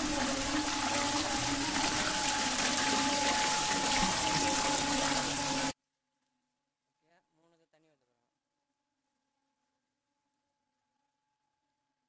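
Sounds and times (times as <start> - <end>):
water splashing into pool: 0.0 - 5.8.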